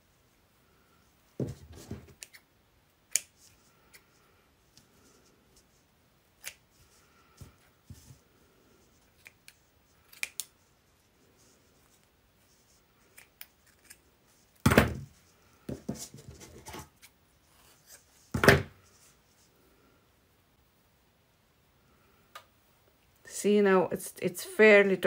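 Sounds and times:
scissors snipping wool: 0:03.1 - 0:03.3, 0:06.4 - 0:06.6, 0:09.2 - 0:10.5.

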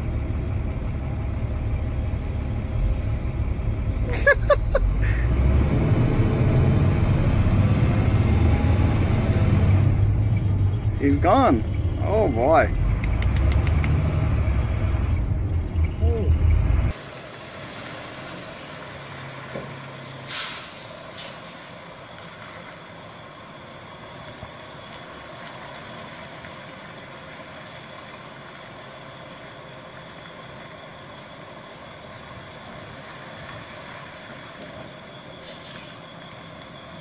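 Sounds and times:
truck engine running: 0:00.0 - 0:37.0
air brake hisses: 0:20.2 - 0:21.7, 0:35.4 - 0:36.1.

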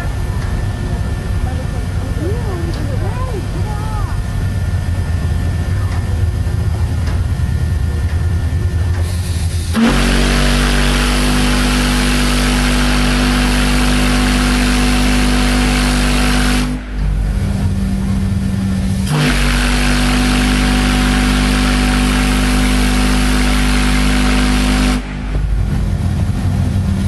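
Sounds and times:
hiss of steam: 0:09.0 - 0:17.0
deep steam whistle blast: 0:09.1 - 0:17.1, 0:18.8 - 0:25.7.

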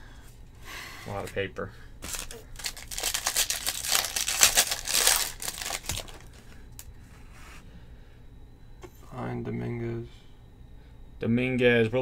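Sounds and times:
foil wrapper crinkling and tearing: 0:02.0 - 0:06.9
handling of cards: 0:02.0 - 0:06.9.

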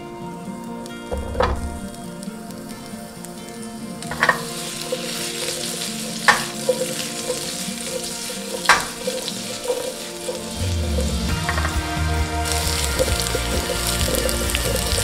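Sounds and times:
potatoes sizzling in oil: 0:00.8 - 0:15.0
frying pan clacks: 0:04.1 - 0:15.0.

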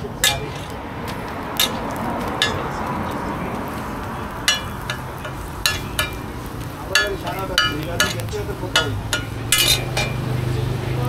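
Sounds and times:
flatbread sizzling on griddle: 0:00.0 - 0:11.0
metal spatula clinking on pan: 0:00.2 - 0:00.8, 0:01.6 - 0:02.8, 0:04.4 - 0:10.4.

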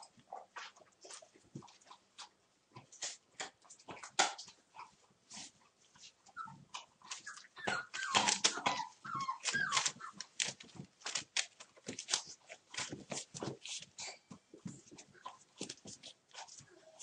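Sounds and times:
paws clicking and scuffling: 0:00.0 - 0:17.0
puppies whining and yipping: 0:06.3 - 0:10.8.

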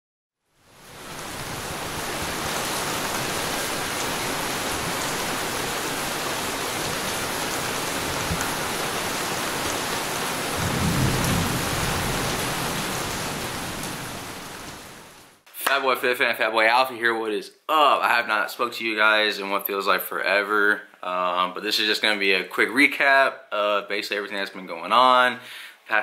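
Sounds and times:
steady rain: 0:00.5 - 0:15.4
low rumble of thunder: 0:10.5 - 0:14.4.

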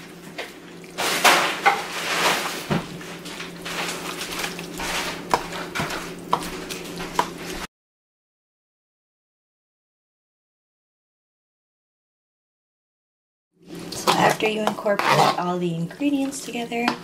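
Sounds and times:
spoon scraping metal bowl: 0:13.8 - 0:15.6.

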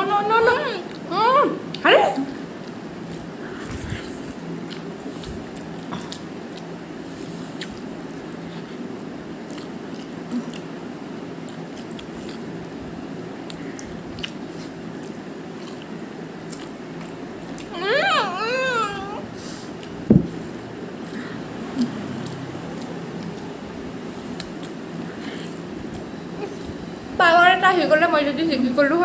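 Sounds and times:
wet slurping and chewing: 0:02.5 - 0:10.7, 0:11.3 - 0:12.7, 0:13.4 - 0:17.7
wavering vocal whine: 0:17.7 - 0:19.4.

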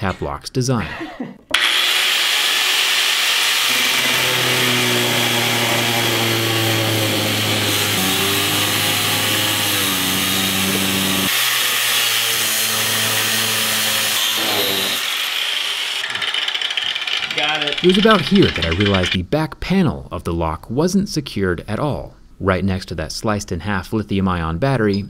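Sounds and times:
angle grinder cutting metal: 0:01.5 - 0:19.2.

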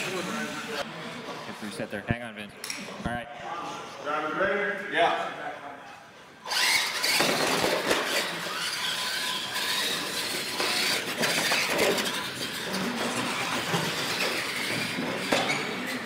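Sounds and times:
toy truck motors whirring: 0:06.4 - 0:16.0.

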